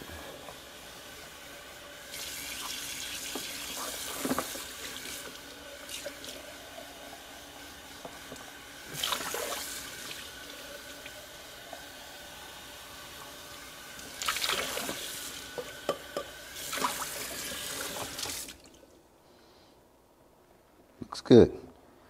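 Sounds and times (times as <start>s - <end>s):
tap water running into plastic jar: 2.1s - 12.0s
water splashing into steel sink: 8.9s - 11.2s, 14.0s - 18.8s.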